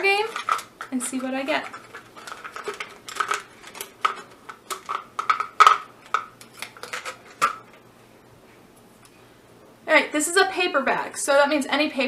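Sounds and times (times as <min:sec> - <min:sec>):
wooden sticks rattling in plastic cup: 0:00.0 - 0:07.6.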